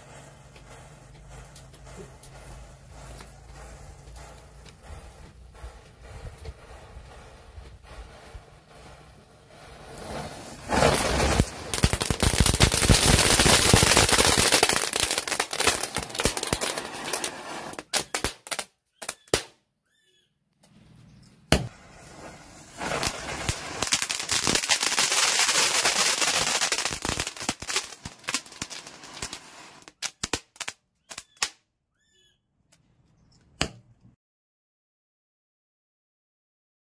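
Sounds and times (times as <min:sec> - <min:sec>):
firecrackers crackling: 0:00.0 - 0:19.5, 0:21.5 - 0:31.5.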